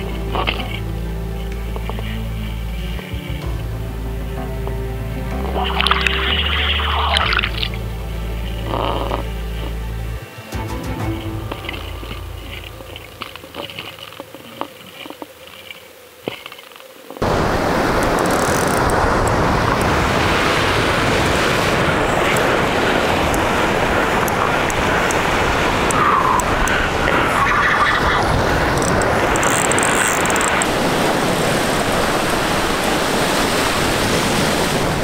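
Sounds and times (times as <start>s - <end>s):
surf breaking against rocks: 17.2s - 35.0s.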